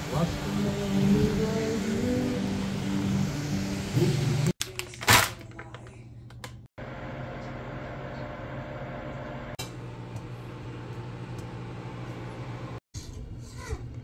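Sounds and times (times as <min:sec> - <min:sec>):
microwave oven humming: 0:06.8 - 0:12.8.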